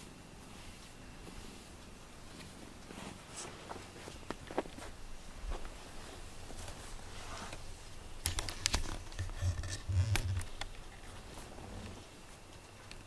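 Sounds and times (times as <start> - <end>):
fur rustling: 0.0 - 8.0.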